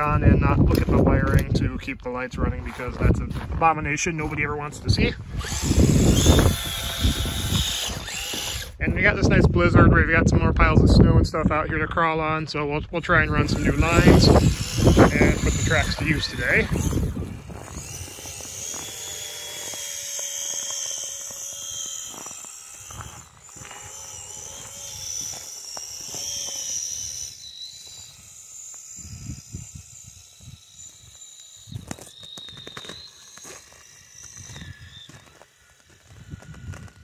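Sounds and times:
toy car electric motor whine: 0:05.2 - 0:08.8, 0:13.2 - 0:37.0.

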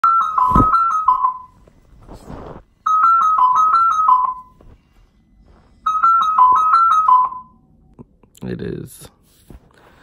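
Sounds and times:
smartphone alarm melody: 0:00.0 - 0:01.7, 0:02.8 - 0:04.7, 0:05.7 - 0:07.6
rustling noise: 0:00.3 - 0:02.8, 0:04.3 - 0:05.9.

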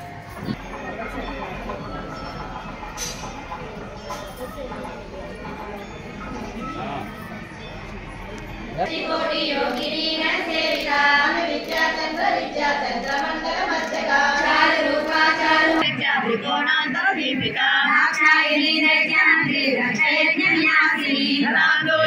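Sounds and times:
high voices singing a hymn: 0:08.8 - 0:22.0.

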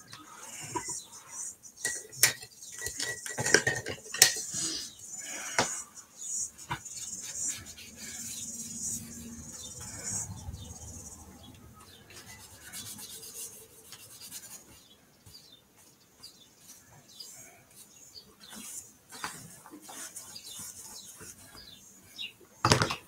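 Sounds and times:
hand rubbing paint on paper: 0:04.5 - 0:11.3, 0:11.9 - 0:15.4, 0:16.6 - 0:22.2.

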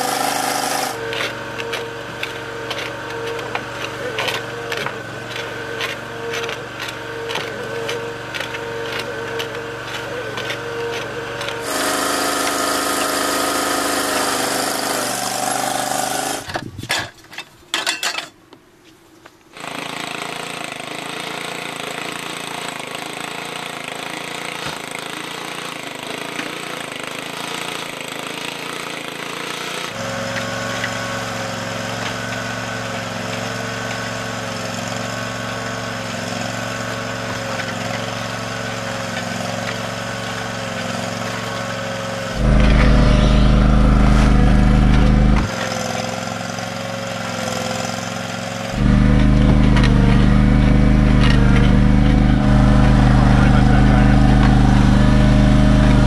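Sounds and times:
small engine running: 0:00.0 - 0:16.6, 0:19.5 - 0:56.0
loud low rumble: 0:42.4 - 0:45.5.

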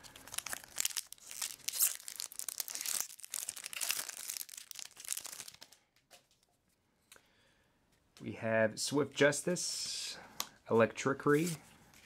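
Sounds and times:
foil wrapper crinkling and tearing: 0:00.0 - 0:05.8.

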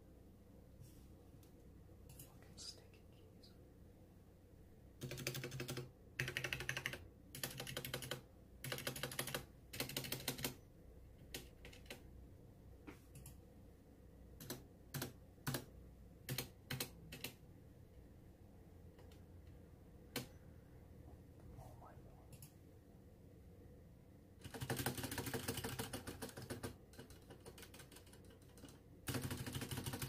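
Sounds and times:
mechanical keyboard keystrokes: 0:05.0 - 0:10.6, 0:11.3 - 0:12.0, 0:14.4 - 0:15.7, 0:16.3 - 0:17.4, 0:24.4 - 0:30.0.

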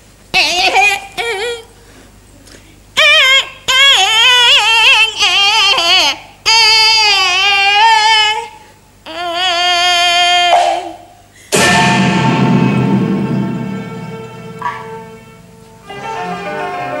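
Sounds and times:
woman singing opera: 0:03.0 - 0:11.0.

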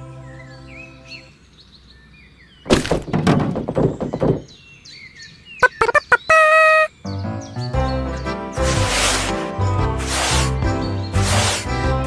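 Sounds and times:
clattering of quick small knocks: 0:02.7 - 0:04.6
faint bird chirps: 0:04.4 - 0:07.7.

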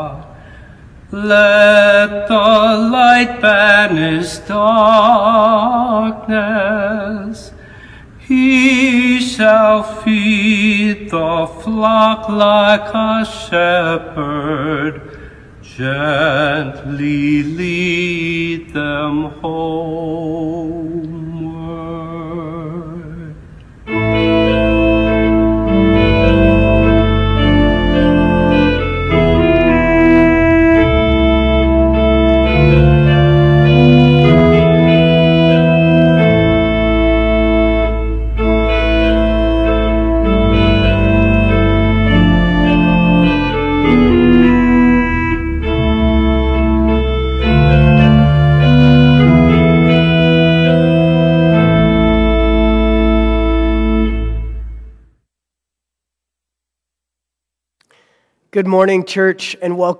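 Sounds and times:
pipe organ playing full chords: 0:08.8 - 0:55.1.

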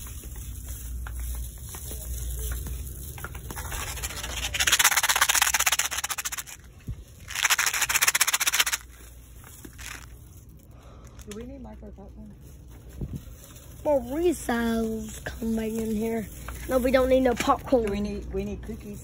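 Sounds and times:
store background rumble: 0:00.0 - 0:19.0
rustling handling noise on microphone: 0:12.4 - 0:18.0.

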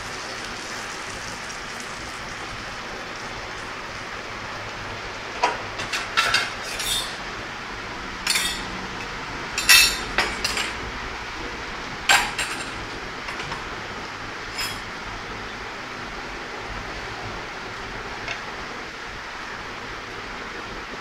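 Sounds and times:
metal ladles clinking on trays: 0:05.8 - 0:07.2, 0:08.2 - 0:10.8, 0:14.5 - 0:14.9.

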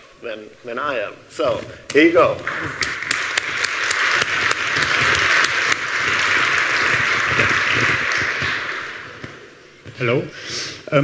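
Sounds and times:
audience applauding: 0:02.2 - 0:09.7.

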